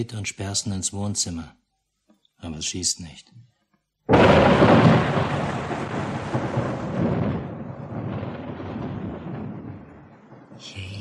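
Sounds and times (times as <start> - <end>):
thunder rumble: 4.1 - 11.0.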